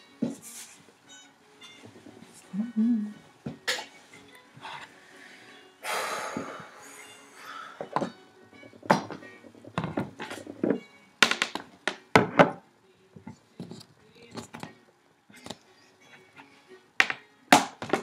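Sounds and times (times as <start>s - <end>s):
objects knocking and clinking on desk: 7.8s - 12.6s, 17.0s - 18.0s.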